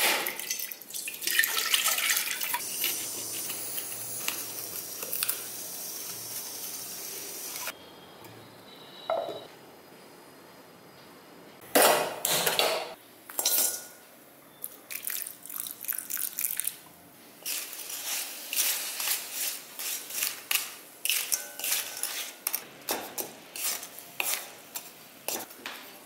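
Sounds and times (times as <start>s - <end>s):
kitchen utensils clattering: 11.8s - 14.0s
spatula scraping a pan: 17.4s - 25.6s.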